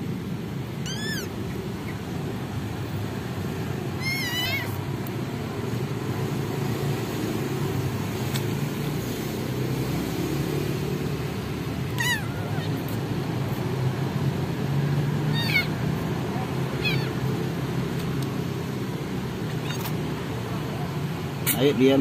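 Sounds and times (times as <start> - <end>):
kitten mewing: 0.7 - 2.5, 3.8 - 4.9, 11.7 - 13.6, 15.2 - 18.1, 19.3 - 20.2, 21.4 - 21.6.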